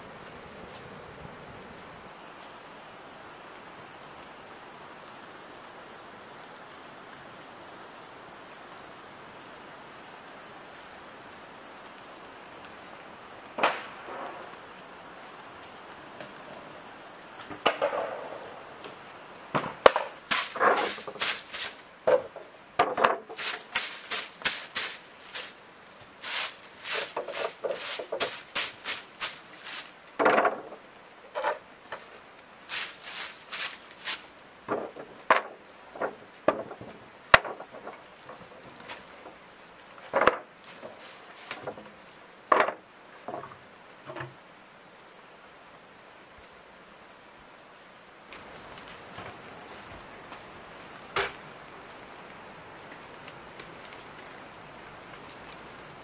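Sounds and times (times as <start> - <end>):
high insect drone: 0.0 - 56.0
wooden boards knocking on concrete: 17.4 - 18.2, 19.5 - 24.9, 26.9 - 29.0, 30.2 - 30.8, 34.7 - 38.6, 40.0 - 41.9, 42.5 - 43.6
broom sweeping wooden boards: 19.9 - 35.4, 40.0 - 41.9.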